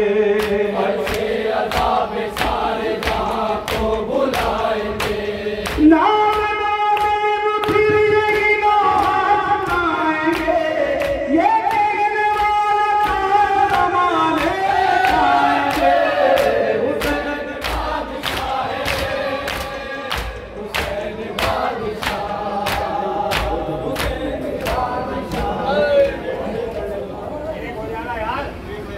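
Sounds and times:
man singing into microphone: 0.0 - 1.2, 5.7 - 15.8
men chanting: 0.0 - 27.5.

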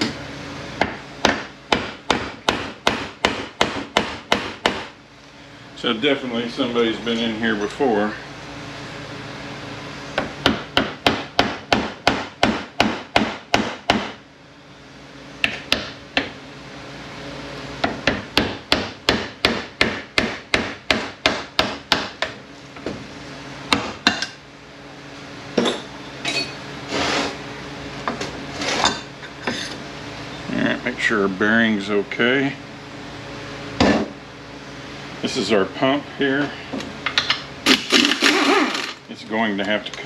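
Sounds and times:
rough scraping noises: 26.8 - 27.4, 28.5 - 29.8.

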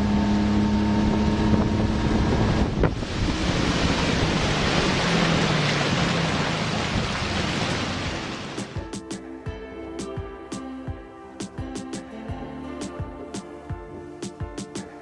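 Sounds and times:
outboard motor running: 0.0 - 8.9
water along hull: 0.0 - 10.4
wind on microphone: 0.6 - 5.9.

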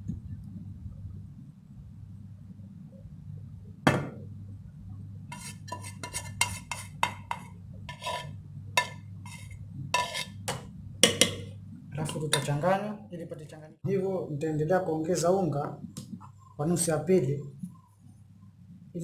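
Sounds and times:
low steady hum: 0.0 - 19.0
metal pot knocking against bowl: 10.5 - 11.5.

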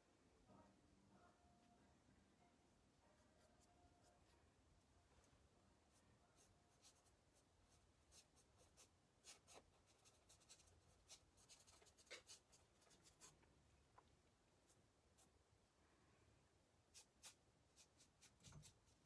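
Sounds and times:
paintbrush strokes and taps: 16.9 - 19.0.

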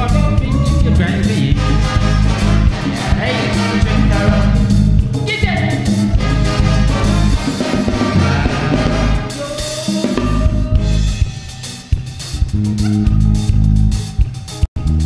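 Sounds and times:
bass: 0.0 - 15.0
drum kit: 0.0 - 15.0
saxophones: 0.4 - 11.8.

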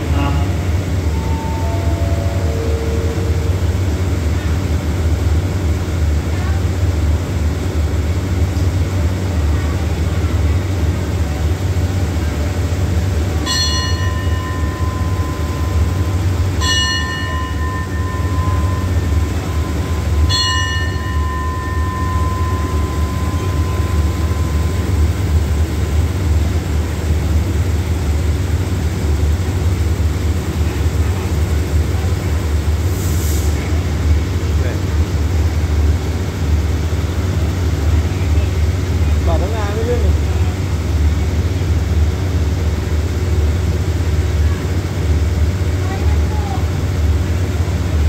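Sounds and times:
diesel train idling: 0.0 - 48.0
bell ringing: 1.0 - 4.3, 13.4 - 26.0.

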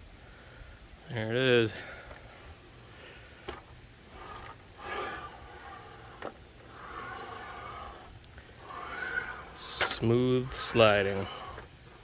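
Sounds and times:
saw head sliding on rails: 3.4 - 12.0.

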